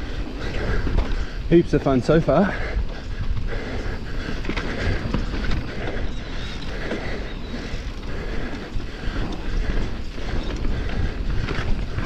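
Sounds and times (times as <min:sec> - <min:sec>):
bike rattling over rough ground: 0:00.0 - 0:12.0
wind rush on microphone: 0:00.0 - 0:12.0.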